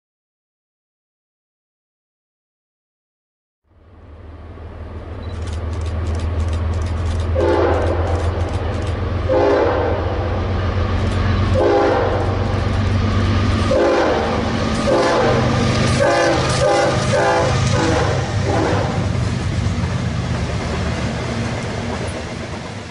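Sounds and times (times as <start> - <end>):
locomotive engine rumble: 3.7 - 22.9
locomotive air horn blasts: 7.3 - 8.2, 9.2 - 10.4, 11.5 - 12.6, 13.5 - 19.1.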